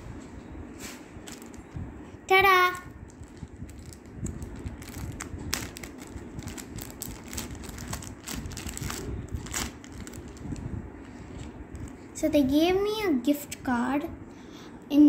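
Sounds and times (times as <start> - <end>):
low handling rumble: 0.0 - 13.2
plastic bag crinkling: 1.2 - 1.8, 3.0 - 12.1.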